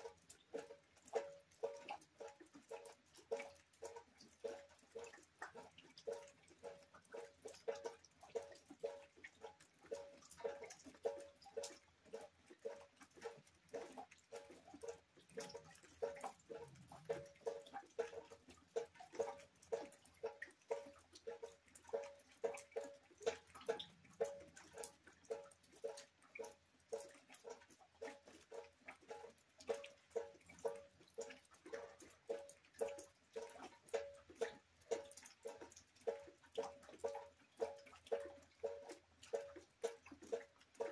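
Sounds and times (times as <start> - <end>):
water dripping into bucket: 0.0 - 40.9.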